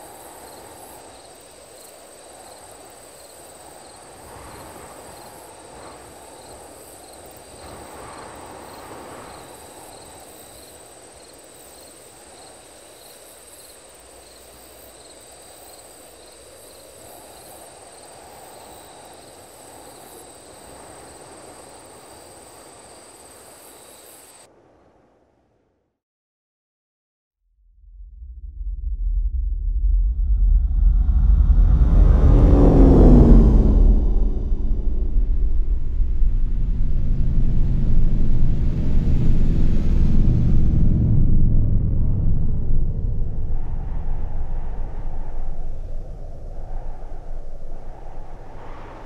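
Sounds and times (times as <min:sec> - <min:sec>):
crickets trilling: 0:00.0 - 0:24.5, 0:42.2 - 0:49.0
faint insect chirps: 0:00.0 - 0:25.0, 0:42.7 - 0:49.0
low noise wash: 0:28.2 - 0:49.0.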